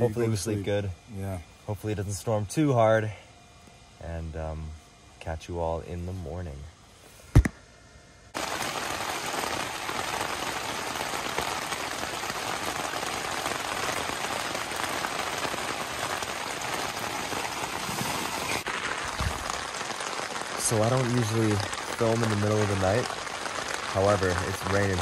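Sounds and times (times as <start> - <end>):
heavy rain on tent fabric: 8.4 - 25.0.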